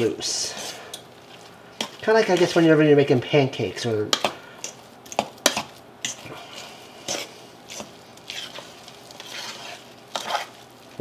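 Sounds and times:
fork squishing potato filling: 0:00.5 - 0:02.8, 0:04.1 - 0:11.0.

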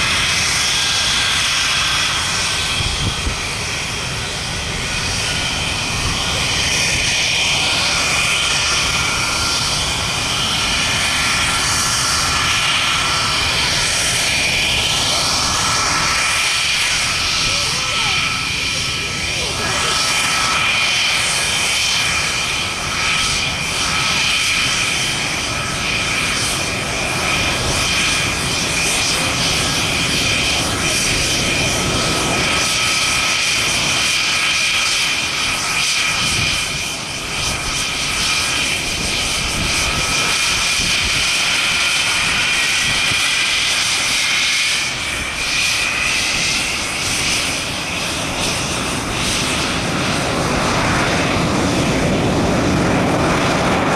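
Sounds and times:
jet engines running: 0:00.0 - 0:53.9.

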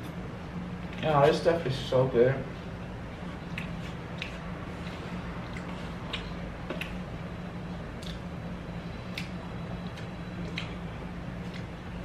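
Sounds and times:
person chewing: 0:03.1 - 0:07.1, 0:07.9 - 0:08.4, 0:09.0 - 0:11.8.

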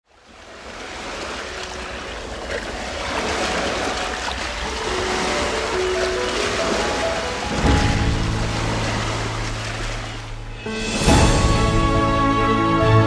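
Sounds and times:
sea waves washing: 0:00.1 - 0:12.2.

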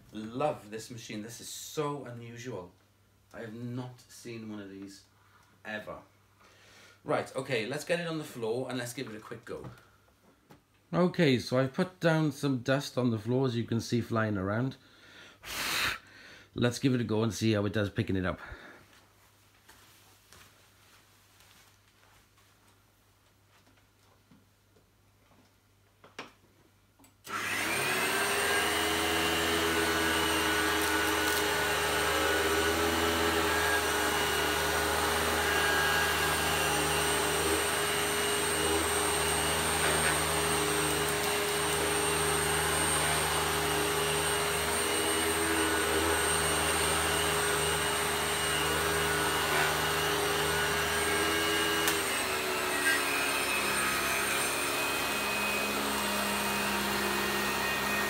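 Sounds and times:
vacuum cleaner motor whining: 0:27.2 - 0:58.0.

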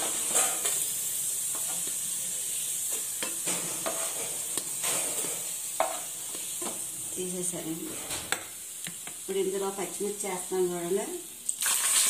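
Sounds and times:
spatula scraping pan: 0:00.0 - 0:00.9, 0:02.9 - 0:06.8
onions sizzling in oil: 0:00.0 - 0:12.0.

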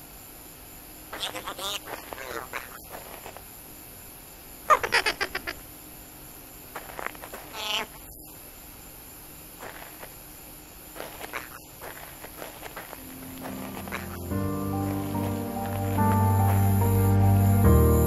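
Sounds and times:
short bird-like calls: 0:01.1 - 0:02.9, 0:07.4 - 0:08.2, 0:13.0 - 0:17.1.

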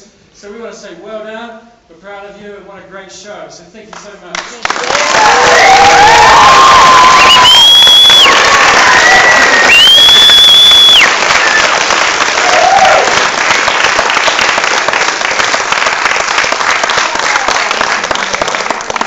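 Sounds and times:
audience applauding: 0:04.4 - 0:19.0
high steady whistle: 0:06.5 - 0:11.8.

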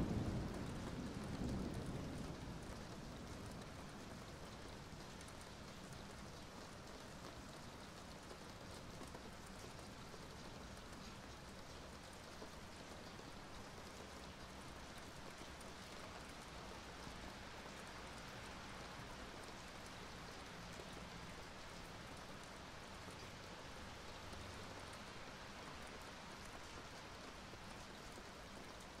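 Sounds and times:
steady rain falling: 0:00.0 - 0:29.0.

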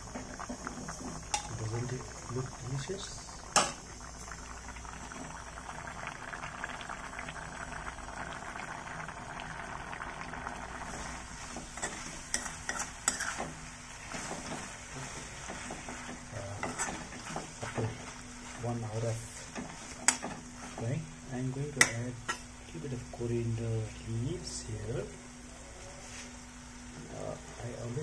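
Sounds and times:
curry bubbling and sizzling: 0:00.0 - 0:25.5
spoon scraping a pan: 0:11.5 - 0:18.1.

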